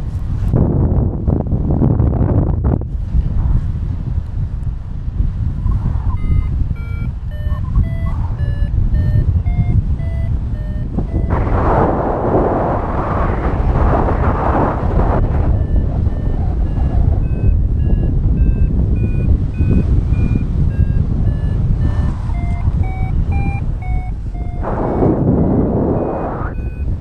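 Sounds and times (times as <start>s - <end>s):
airflow rushing on camera: 2.8s - 27.0s
variometer beeping: 6.1s - 27.0s.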